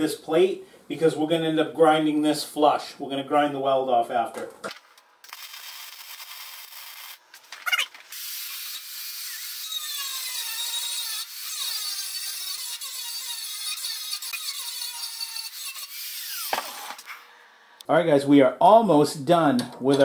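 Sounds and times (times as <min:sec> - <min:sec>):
angle grinder grinding steel: 0:08.1 - 0:17.1.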